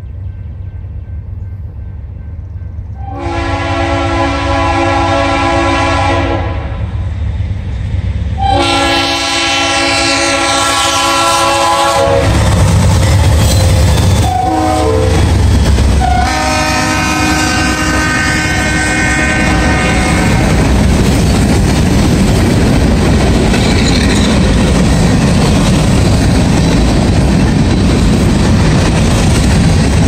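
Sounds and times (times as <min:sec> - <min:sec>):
train rumbling by: 0:00.0 - 0:30.0
locomotive air horn blasts: 0:03.0 - 0:06.9, 0:08.4 - 0:12.5, 0:14.2 - 0:15.2, 0:16.0 - 0:20.6.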